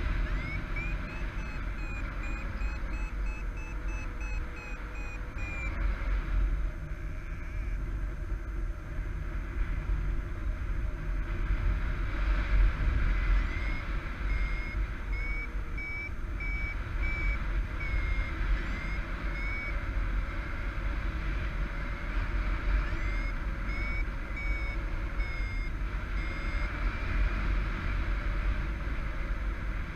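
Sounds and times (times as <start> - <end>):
variometer beeping: 0.0 - 5.8, 6.7 - 7.9, 13.2 - 20.5, 22.6 - 26.8
wind rush on microphone: 5.8 - 22.8.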